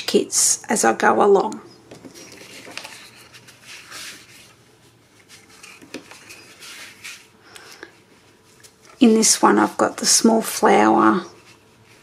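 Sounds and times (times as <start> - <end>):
paper rustling and swishing: 2.0 - 7.4.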